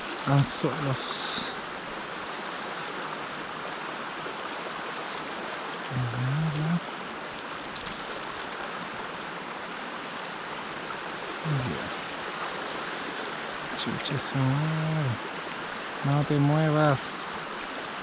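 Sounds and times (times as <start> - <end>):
river rushing over riffle: 0.0 - 18.0
man humming: 11.4 - 12.0.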